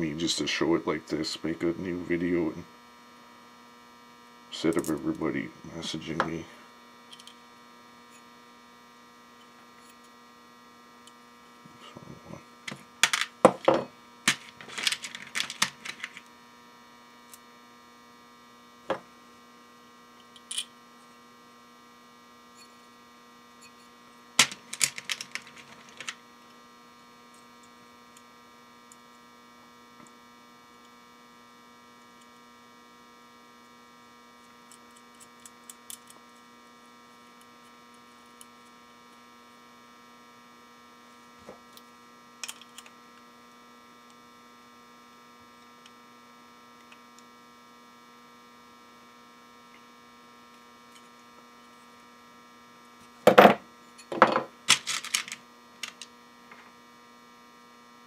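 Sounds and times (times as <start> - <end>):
steady electrical hum: 0.0 - 58.0
metal parts clicking and clattering: 12.7 - 16.3, 24.4 - 26.2, 53.3 - 56.1.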